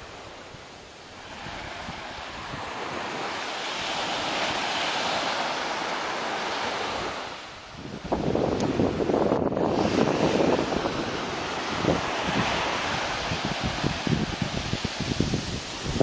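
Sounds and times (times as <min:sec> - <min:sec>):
surf washing up a beach: 0:00.0 - 0:16.0
wind buffeting microphone: 0:06.7 - 0:16.0.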